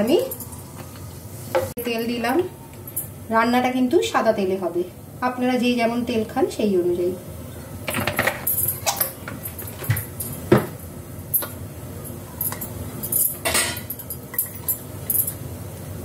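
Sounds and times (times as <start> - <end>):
metal cookware clinking and knocking: 12.4 - 15.4.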